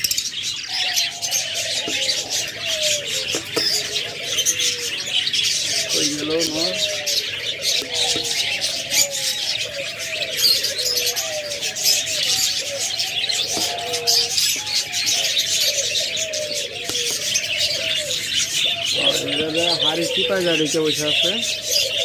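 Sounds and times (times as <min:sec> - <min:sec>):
doves cooing: 0:00.0 - 0:22.0
small birds chirping: 0:00.0 - 0:22.0.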